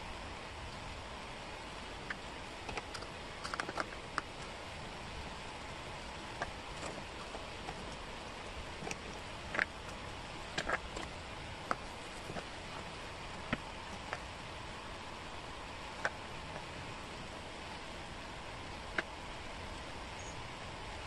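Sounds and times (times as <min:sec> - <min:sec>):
steady background hiss: 0:00.0 - 0:21.0
wooden puzzle pieces clicking: 0:08.8 - 0:11.1.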